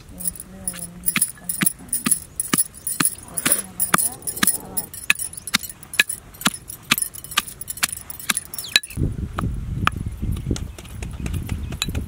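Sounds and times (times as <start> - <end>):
pestle pounding in steel mortar: 0.2 - 9.0.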